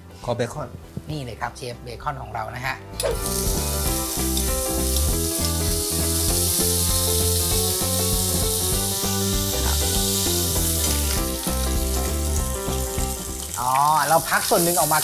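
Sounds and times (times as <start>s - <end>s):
background music: 0.0s - 15.0s
bacon sizzling in oil: 3.0s - 15.0s.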